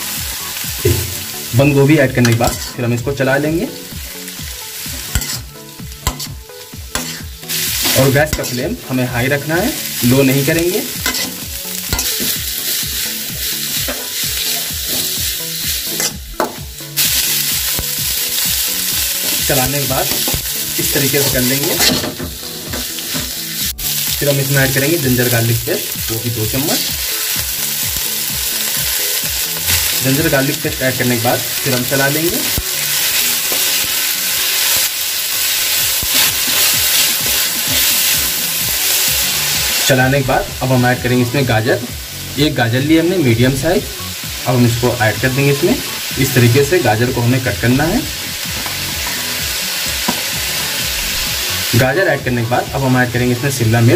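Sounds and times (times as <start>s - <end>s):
vegetables sizzling in a pan: 0.0s - 53.9s
metal spatula scraping a pan: 2.2s - 2.8s, 5.0s - 8.6s, 9.8s - 13.0s, 13.7s - 15.2s, 15.8s - 17.8s, 21.2s - 23.4s
spatula scraping metal pan: 2.2s - 2.8s, 5.0s - 8.6s, 11.0s - 12.8s.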